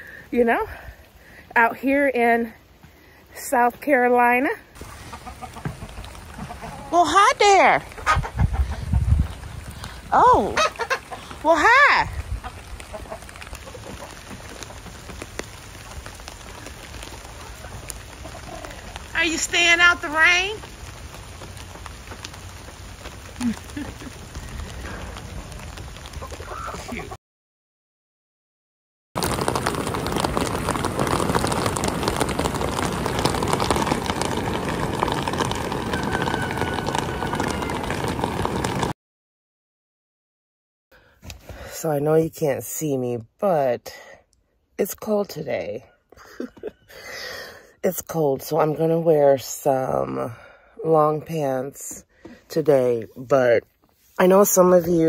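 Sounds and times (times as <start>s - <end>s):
steady rain falling: 4.5s - 27.2s, 29.2s - 39.0s, 46.1s - 47.7s.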